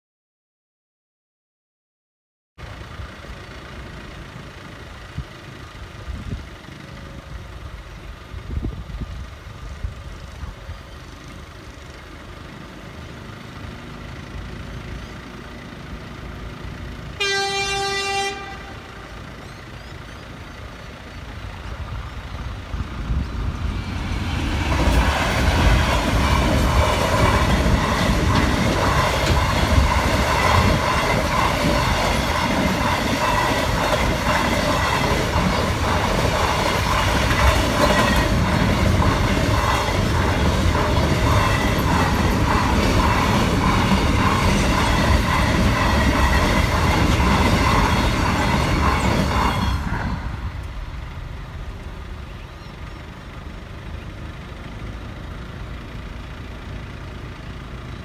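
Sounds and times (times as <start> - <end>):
train horn blast: 17.2 - 19.2
freight wagons rumbling and clattering: 19.2 - 58.0.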